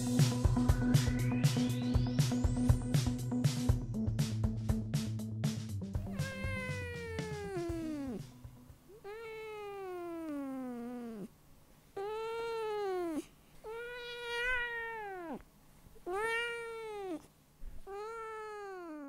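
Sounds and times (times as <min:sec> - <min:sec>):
cat meowing: 0:06.0 - 0:08.3, 0:08.9 - 0:11.3, 0:12.0 - 0:15.4, 0:16.0 - 0:19.0.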